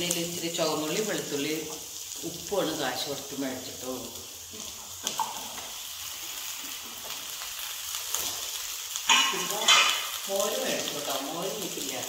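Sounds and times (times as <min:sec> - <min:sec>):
vegetables sizzling in hot pan: 0:00.0 - 0:12.0.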